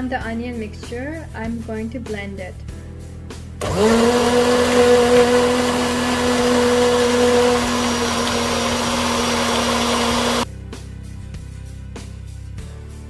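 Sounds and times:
blender motor whine: 3.6 - 10.4.

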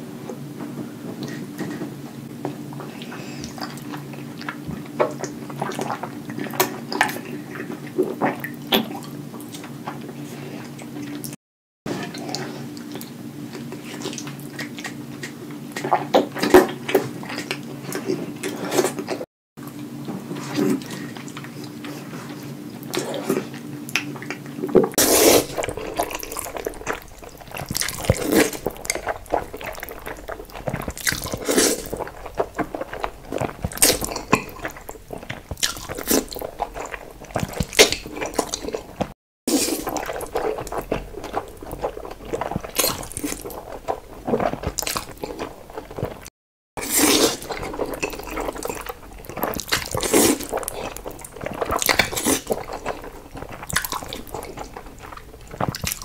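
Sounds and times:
wet chewing: 22.8 - 56.0
noodle slurping: 25.0 - 56.0.

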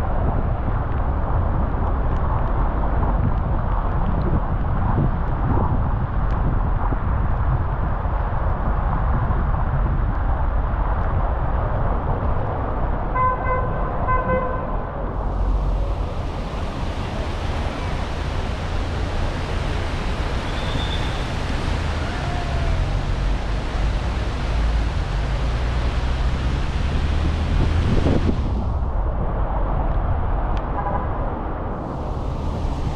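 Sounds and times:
road rumble on wet road: 0.0 - 32.9
car horn: 13.2 - 14.7
high hiss: 15.2 - 28.6.

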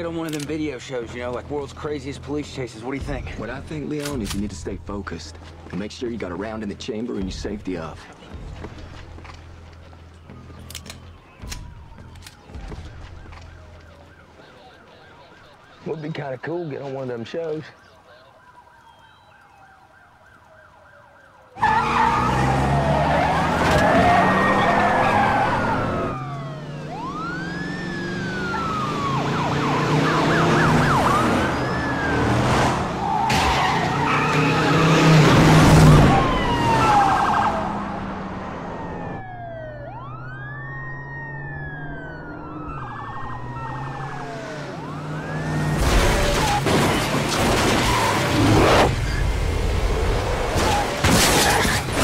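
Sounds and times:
police sirens wailing: 6.4 - 52.0
tyres screeching: 21.6 - 26.2
car engines running hard: 21.6 - 52.0.

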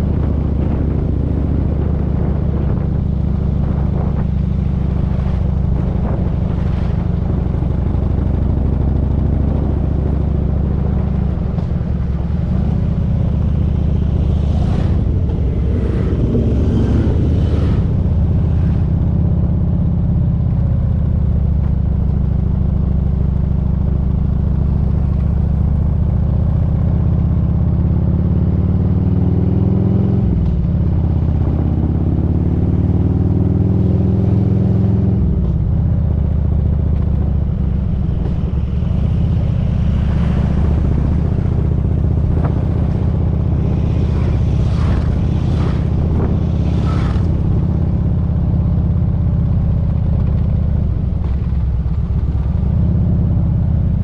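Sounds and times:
motorcycle engine droning: 0.0 - 28.1, 30.4 - 54.0.

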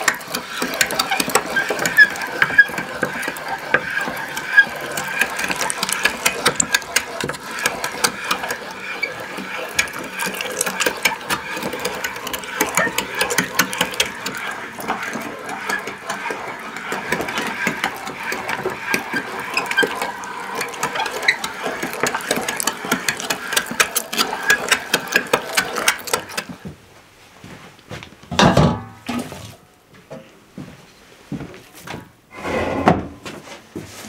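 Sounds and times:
hand-cranked meat grinder rattling: 0.0 - 26.6.

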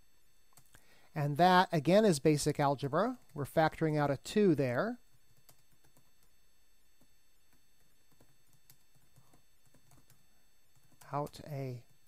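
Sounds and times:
faint room hiss: 0.0 - 12.0
computer keyboard typing: 0.6 - 0.8, 5.0 - 6.3, 7.0 - 12.0.

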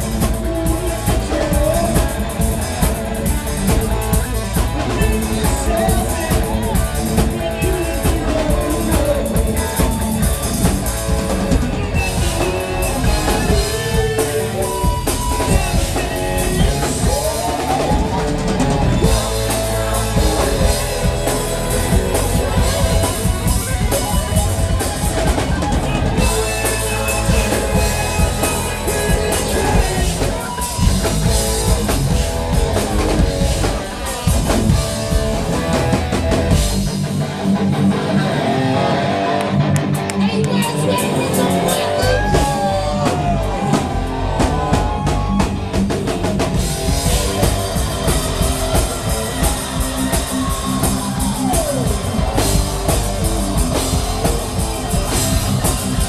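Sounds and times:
person singing: 0.0 - 34.3
bass guitar: 0.0 - 56.0
drum kit: 0.0 - 56.0
electric guitar: 0.0 - 56.0.

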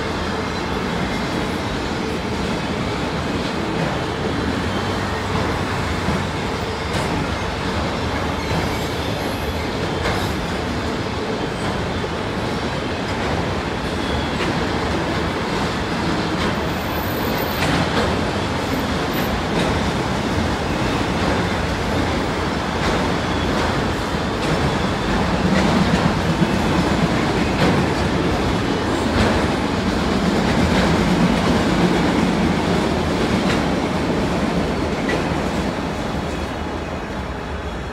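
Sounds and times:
train wheels rumbling on rail: 0.0 - 37.9.

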